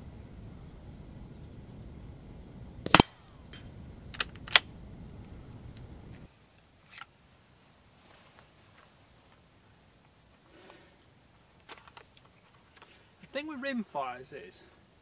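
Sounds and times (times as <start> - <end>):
sharp rifle cracks: 2.8 - 4.7
small metallic clinks: 2.9 - 3.7
metallic clang of steel target: 2.9 - 3.8.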